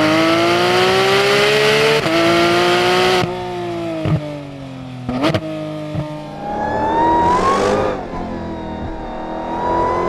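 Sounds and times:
car engine accelerating: 5.1 - 10.0.

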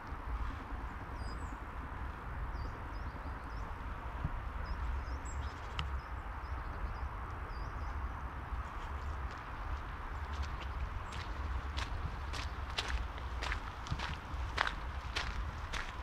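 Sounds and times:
small birds chirping: 2.5 - 16.0
footsteps crunching on trail: 8.6 - 16.0.

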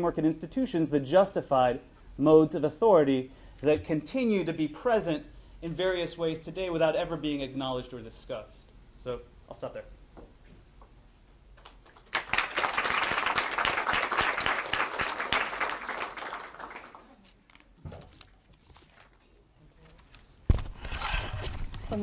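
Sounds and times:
audience applauding: 11.7 - 17.2.

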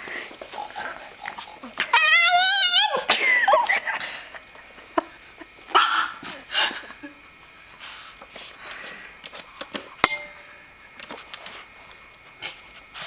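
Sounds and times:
dog whining: 1.6 - 3.0.

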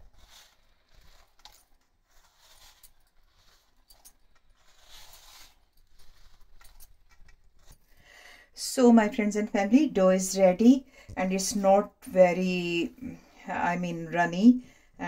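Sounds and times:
hand mixing dough in metal bowl: 0.0 - 8.0
metal bangles clinking: 1.2 - 8.0.

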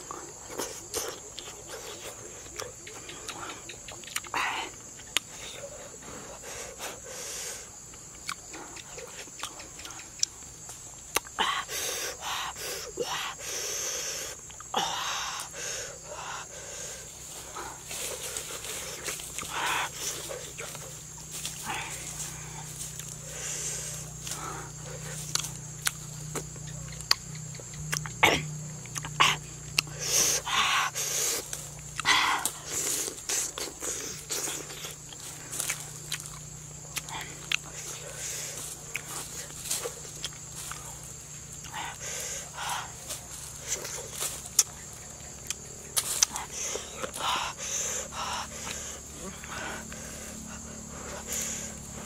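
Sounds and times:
mouth clicks and smacks chewing: 0.2 - 4.4, 5.0 - 5.4, 7.9 - 11.4, 25.0 - 30.3, 31.4 - 41.0, 43.7 - 47.2
mouth clicks and lip smacks: 0.6 - 4.4, 7.9 - 10.5, 25.2 - 28.2, 28.8 - 29.9, 43.8 - 46.4.

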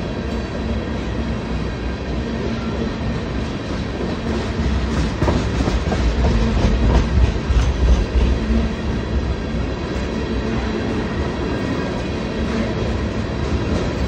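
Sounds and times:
low rumble of rolling train: 0.0 - 14.0
train wheels clacking over rail joints: 3.4 - 9.2.

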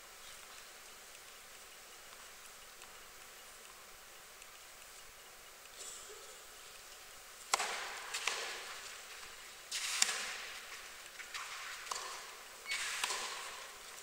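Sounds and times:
tennis ball hit by rackets: 7.5 - 8.8, 11.4 - 12.3, 13.0 - 13.7.

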